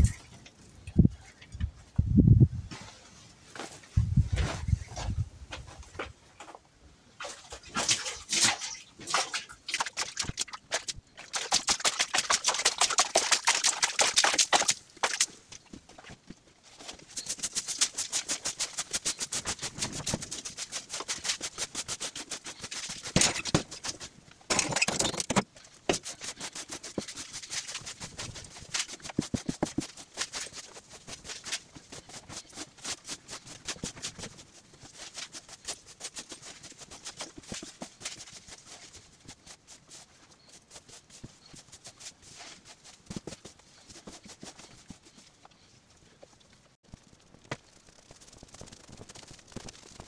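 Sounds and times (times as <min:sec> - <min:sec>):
broom sweeping earth floor: 0:02.6 - 0:06.0, 0:13.6 - 0:24.2, 0:25.8 - 0:45.8.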